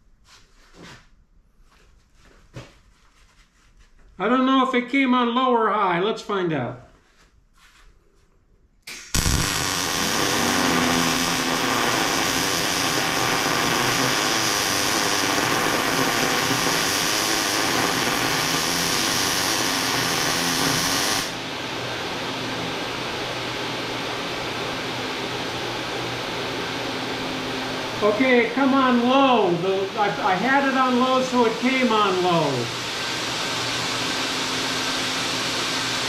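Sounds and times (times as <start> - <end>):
welding arc crackling: 8.9 - 21.4
fume extractor fan: 8.9 - 36.0.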